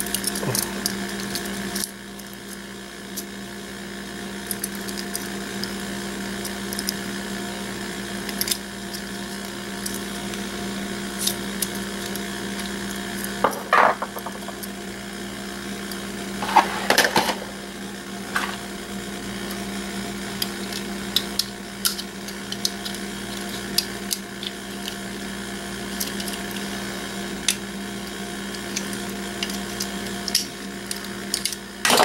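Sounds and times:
steady background hum: 0.0 - 32.0.

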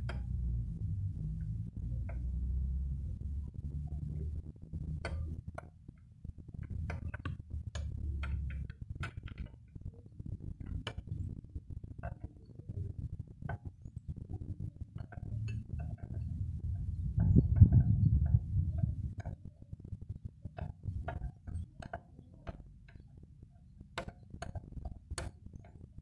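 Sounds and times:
low rumble: 0.0 - 5.1, 14.2 - 19.2.

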